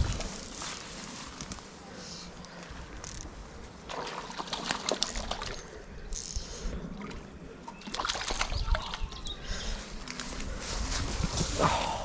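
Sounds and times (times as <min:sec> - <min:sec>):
reeds and grass rustling: 0:00.0 - 0:04.1, 0:09.5 - 0:12.0.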